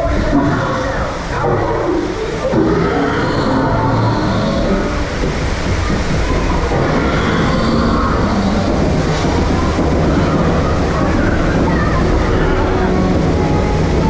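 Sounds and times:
lift chain rattling and rumbling: 0:03.7 - 0:14.0.

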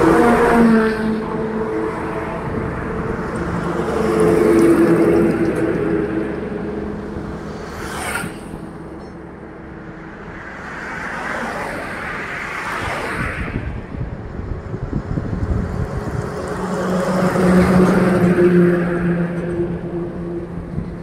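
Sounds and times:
highway traffic passing: 0:00.0 - 0:21.0.

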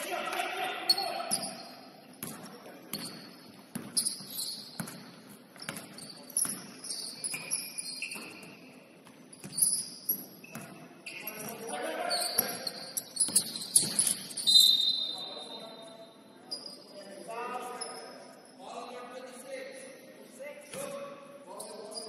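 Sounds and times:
sneakers squeaking on gym floor: 0:00.8 - 0:15.6, 0:16.4 - 0:17.0
basketball bouncing on court: 0:02.2 - 0:07.6, 0:12.3 - 0:14.3.

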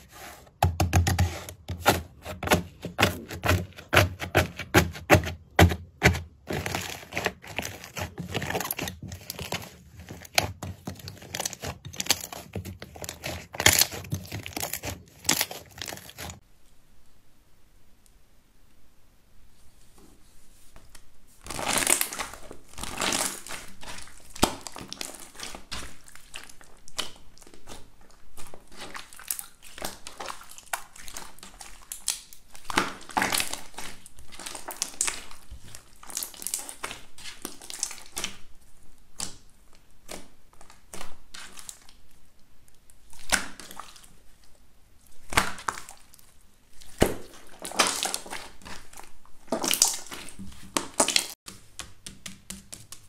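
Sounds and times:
slime crackling and popping: 0:06.5 - 0:16.4, 0:21.5 - 0:38.5, 0:45.2 - 0:51.4.

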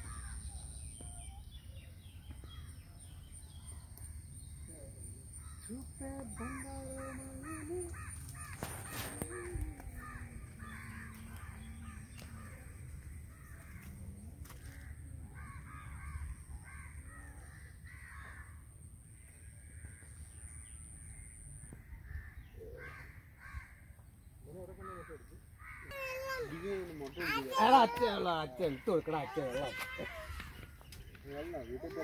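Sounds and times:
crows cawing: 0:06.4 - 0:20.2, 0:21.8 - 0:24.0, 0:24.6 - 0:30.9.

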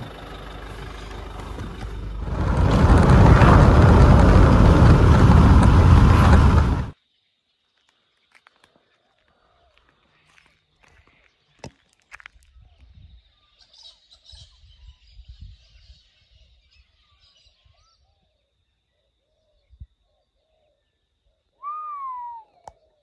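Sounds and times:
low wind rumble: 0:00.0 - 0:07.0
faint birdsong: 0:07.0 - 0:23.0.

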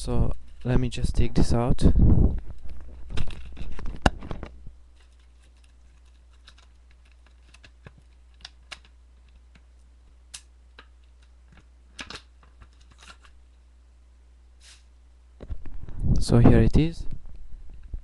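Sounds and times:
plastic packaging rustling: 0:02.3 - 0:09.8, 0:10.8 - 0:13.4
plastic packaging clicks: 0:02.6 - 0:09.7, 0:10.3 - 0:13.4.

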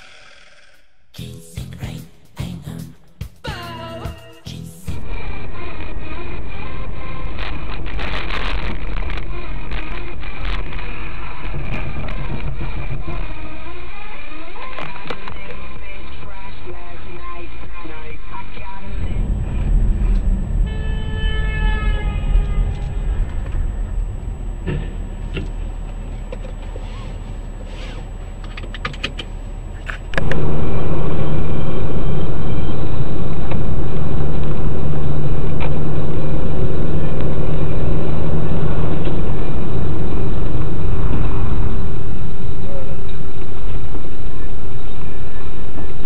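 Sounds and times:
car engine and road drone: 0:04.9 - 0:14.0, 0:18.8 - 0:46.0
falling tone: 0:18.8 - 0:27.7.

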